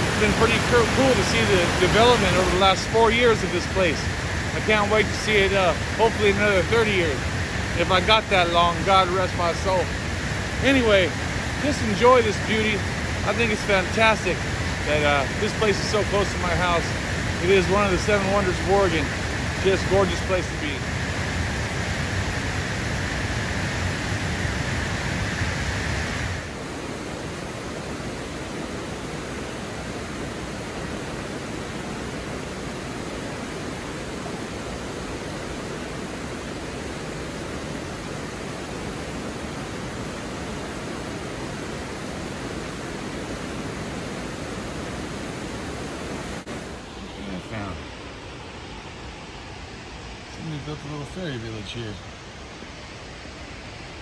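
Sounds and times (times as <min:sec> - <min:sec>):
creek running over rocks: 0:00.0 - 0:20.8
waterfall roaring: 0:00.0 - 0:54.0.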